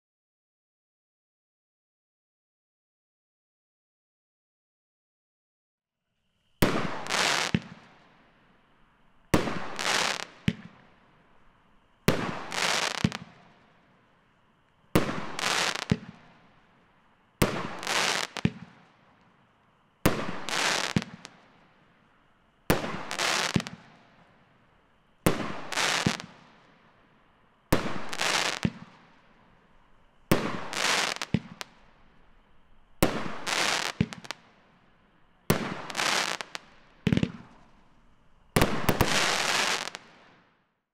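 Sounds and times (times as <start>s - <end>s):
firework shots cracking and bursting: 6.6s - 8.1s, 9.3s - 11.0s, 12.0s - 13.7s, 14.9s - 16.5s, 17.4s - 19.2s, 20.0s - 21.7s, 22.7s - 24.2s, 25.2s - 26.8s, 27.7s - 29.3s, 30.3s - 32.4s, 33.0s - 34.7s, 35.5s - 37.9s, 38.6s - 40.4s.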